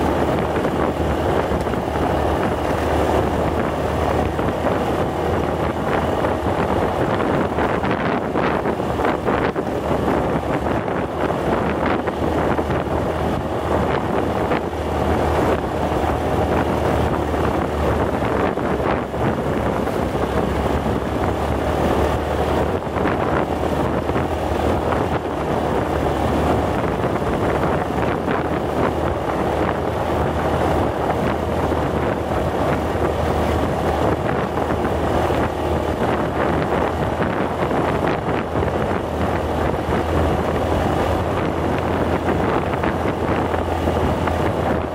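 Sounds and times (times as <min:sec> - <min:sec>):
low engine drone: 0:00.0 - 0:44.9
wind buffeting microphone: 0:00.0 - 0:44.9.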